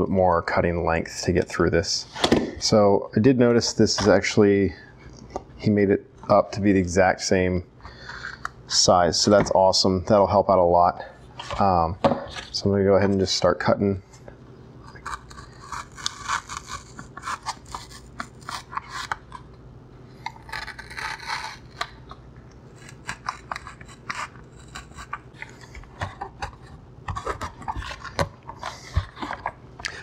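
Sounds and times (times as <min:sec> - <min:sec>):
knife sawing through foam: 0:14.9 - 0:19.2, 0:20.4 - 0:21.8, 0:22.8 - 0:25.2.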